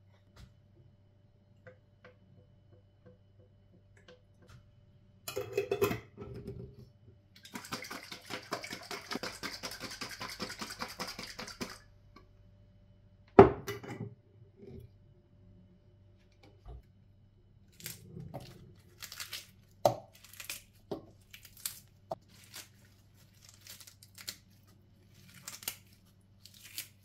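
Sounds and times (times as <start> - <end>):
pepper mill grinding: 7.4 - 11.8.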